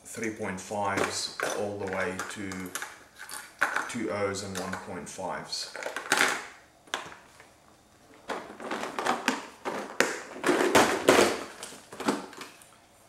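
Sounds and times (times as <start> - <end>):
plastic tray clattering: 8.1 - 12.6.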